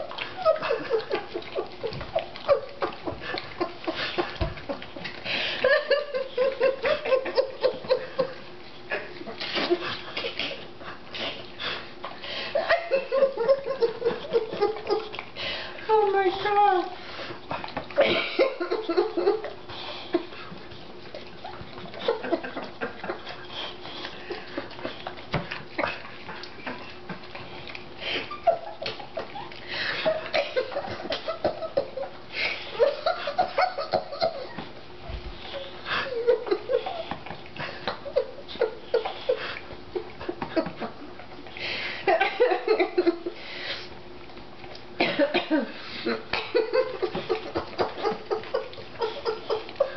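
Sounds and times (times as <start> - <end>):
dog licking and lapping: 0.0 - 49.9
person's voice: 15.9 - 17.0.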